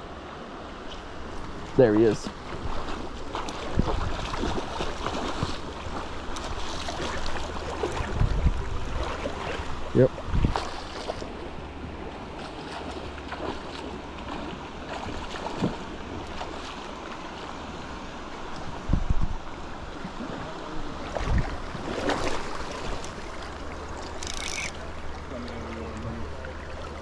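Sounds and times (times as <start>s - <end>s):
creek water rippling: 0.0s - 27.0s
wind rumbling on microphone: 1.2s - 16.8s, 18.4s - 23.9s.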